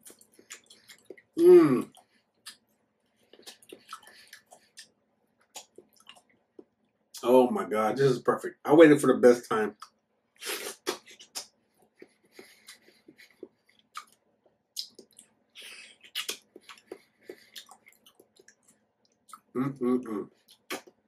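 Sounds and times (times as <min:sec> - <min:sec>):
wet mouth smacks and clicks: 0:00.0 - 0:01.3, 0:03.3 - 0:04.9, 0:05.5 - 0:06.7, 0:09.8 - 0:14.2, 0:14.8 - 0:19.5, 0:20.5 - 0:21.0
person chewing mango: 0:00.0 - 0:06.7, 0:09.8 - 0:19.6, 0:20.4 - 0:21.0.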